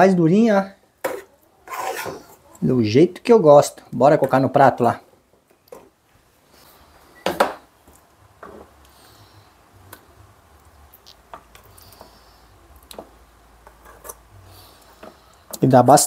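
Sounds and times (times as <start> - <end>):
metal spoon scraping a pan: 1.0 - 2.4, 13.7 - 14.2.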